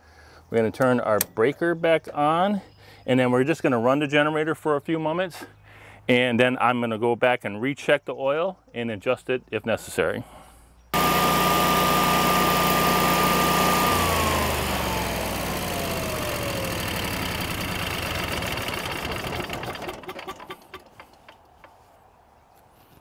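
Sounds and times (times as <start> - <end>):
generator engine winding down: 11.0 - 21.1.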